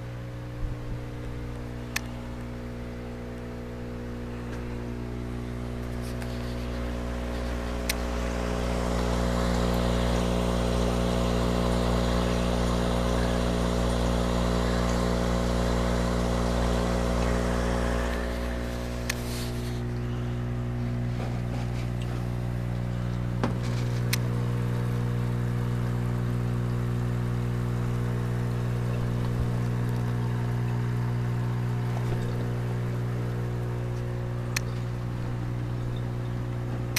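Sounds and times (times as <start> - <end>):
pump electrical hum: 0.0 - 36.9
bubbling water hiss: 5.9 - 20.0.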